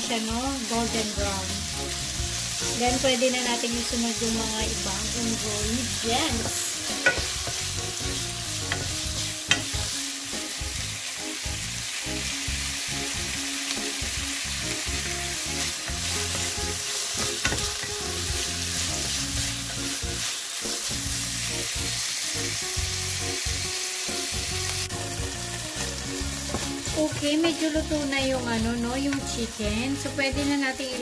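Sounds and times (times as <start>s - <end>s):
chicken sizzling in oil: 0.0s - 31.0s
wooden spoon knocking pan: 6.2s - 7.7s, 17.2s - 17.9s, 26.4s - 27.7s.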